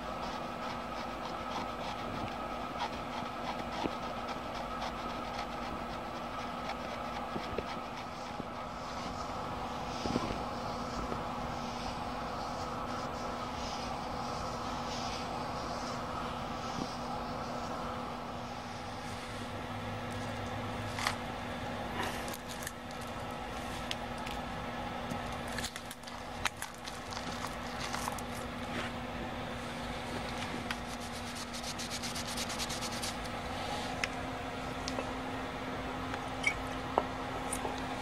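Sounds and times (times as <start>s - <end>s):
steady low hum: 0.0s - 38.0s
cloth rubbing and scraping: 30.6s - 34.0s.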